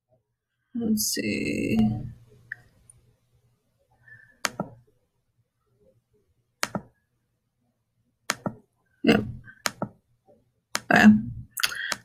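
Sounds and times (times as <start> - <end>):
computer mouse clicking: 4.4 - 4.8, 6.6 - 6.9, 8.3 - 8.6, 9.6 - 10.0, 11.7 - 12.0.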